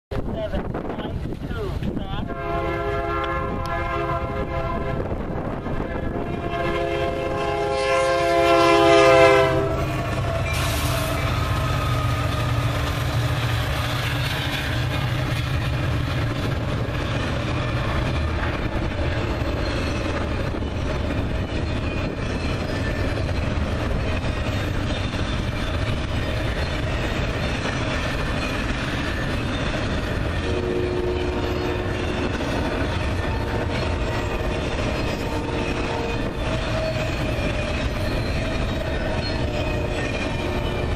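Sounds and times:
locomotive rumble: 0:00.1 - 0:40.9
locomotive horn blast: 0:02.2 - 0:05.2, 0:05.8 - 0:11.5, 0:30.4 - 0:32.0
train cars clattering on rails: 0:05.0 - 0:40.9.

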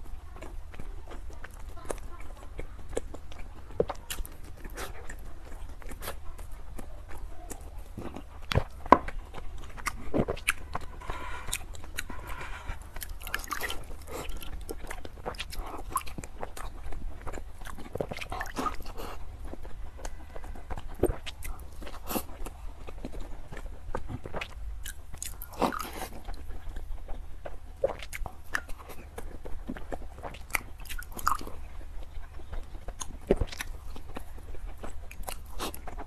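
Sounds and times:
person chewing cake: 0:00.0 - 0:36.0.

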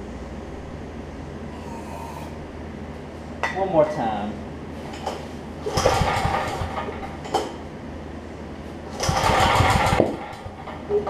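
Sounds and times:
engine turning over: 0:05.6 - 0:07.2, 0:08.9 - 0:10.8
recoil starter pull: 0:05.7 - 0:07.2, 0:09.0 - 0:10.8.

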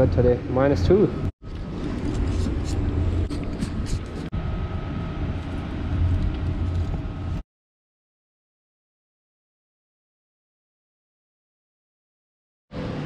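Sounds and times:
street traffic rumble: 0:00.0 - 0:07.4.

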